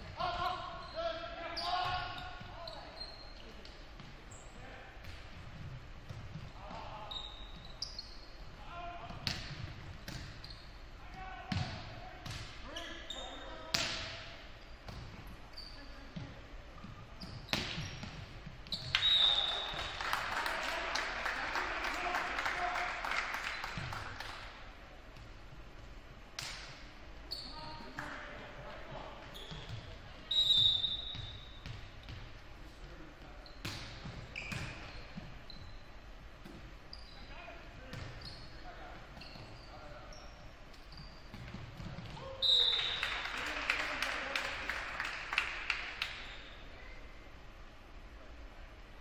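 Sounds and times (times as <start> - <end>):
referee's whistle blast: 18.8 - 19.8
crowd clapping and cheering: 19.5 - 24.4, 42.9 - 46.1.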